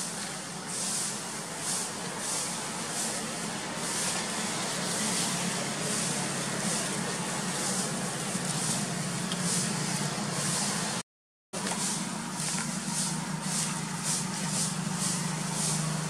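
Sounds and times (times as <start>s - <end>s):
high-pitched pulsing hiss: 11.6s - 16.0s.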